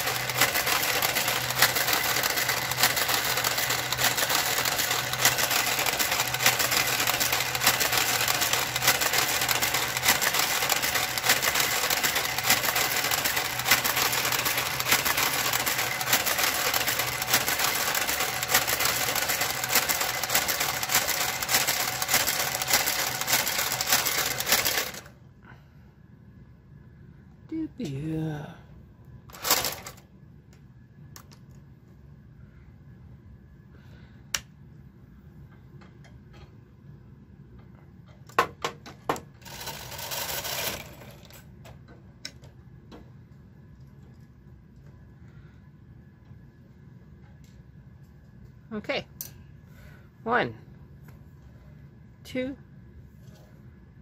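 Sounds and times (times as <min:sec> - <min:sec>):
knitting machine carriage clatter: 0:00.0 - 0:25.1, 0:29.3 - 0:30.0, 0:39.4 - 0:41.4.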